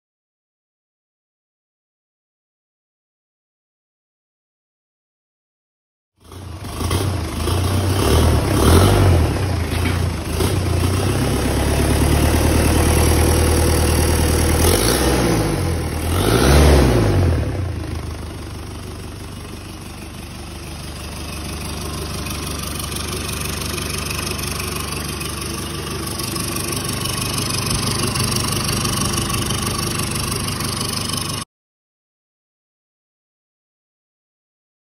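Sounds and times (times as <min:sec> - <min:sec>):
diesel engine revving and idling: 0:06.2 - 0:31.4.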